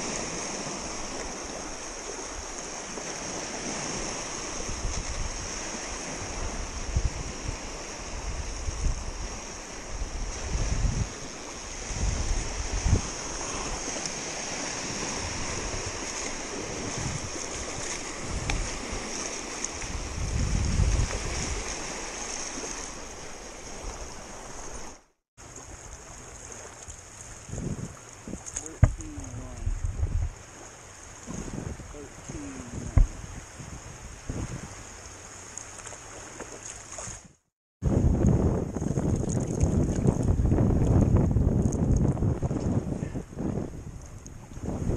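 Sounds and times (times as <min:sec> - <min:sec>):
lake waves lapping and splashing: 0:00.0 - 0:44.9
wind buffeting microphone: 0:04.6 - 0:22.0, 0:27.3 - 0:30.6, 0:31.2 - 0:35.0, 0:37.8 - 0:44.9.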